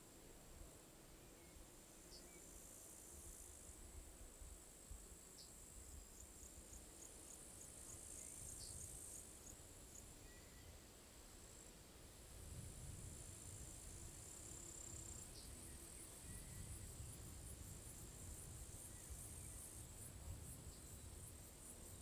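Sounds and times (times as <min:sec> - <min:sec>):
crickets trilling: 0:12.7 - 0:22.0.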